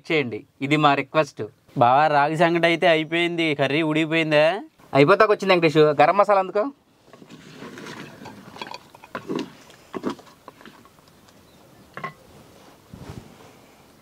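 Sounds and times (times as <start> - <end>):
ladle scraping in clay pot: 7.1 - 11.0.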